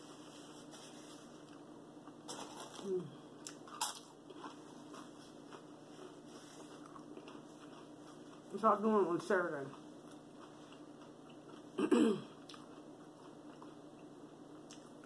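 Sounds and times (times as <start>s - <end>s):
person chewing food: 3.3s - 8.8s, 9.6s - 15.0s.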